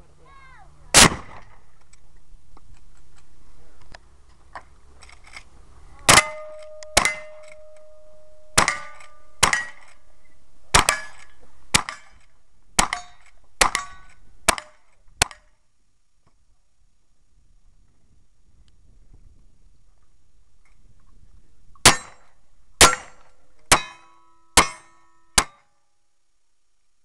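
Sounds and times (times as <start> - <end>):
rifle shots: 0.9 - 1.6, 6.1 - 7.9, 8.5 - 10.0, 10.7 - 12.2, 12.8 - 15.4
steel targets ringing: 6.1 - 12.1, 21.9 - 25.6.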